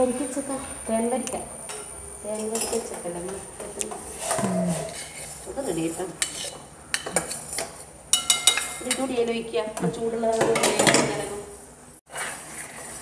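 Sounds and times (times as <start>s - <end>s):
metal spoons scraping pots: 4.1s - 9.1s.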